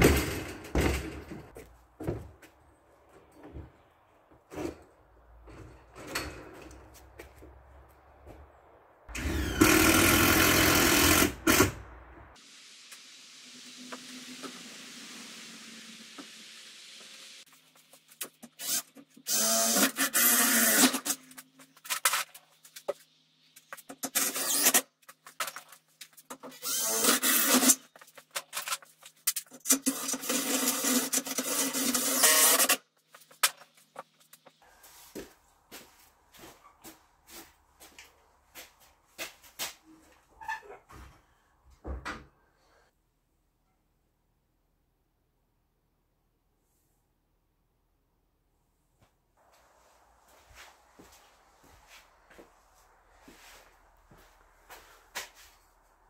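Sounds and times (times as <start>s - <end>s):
power tool motor running: 9.2s - 11.7s
cordless drill driving screws: 9.2s - 11.8s, 18.6s - 21.1s, 24.1s - 24.8s, 26.6s - 27.8s, 29.9s - 32.8s.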